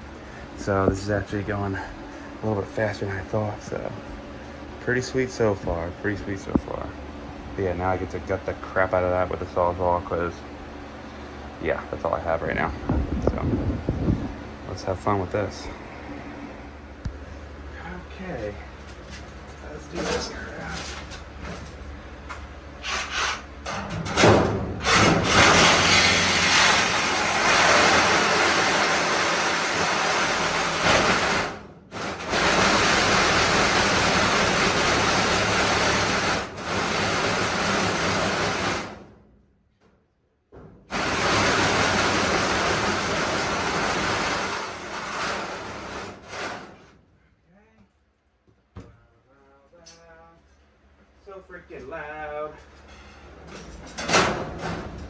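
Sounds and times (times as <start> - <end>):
reciprocating saw cutting sheet metal: 24.8 - 39.0, 40.9 - 46.8.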